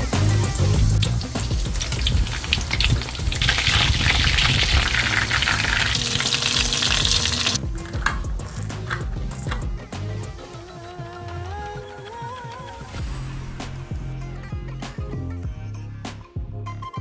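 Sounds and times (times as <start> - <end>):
deep-frying sizzle and crackle: 0.0 - 7.6.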